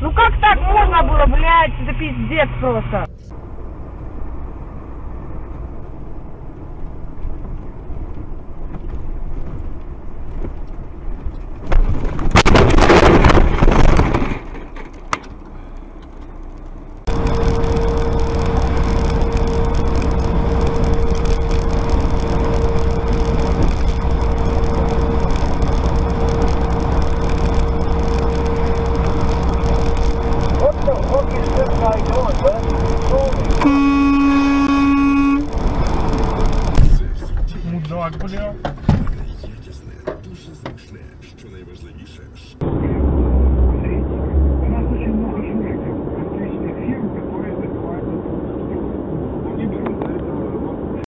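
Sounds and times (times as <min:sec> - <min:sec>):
low road rumble: 0:00.0 - 0:51.0
truck cab drone: 0:01.6 - 0:51.0
loud rough noise: 0:17.0 - 0:37.2, 0:42.6 - 0:46.4.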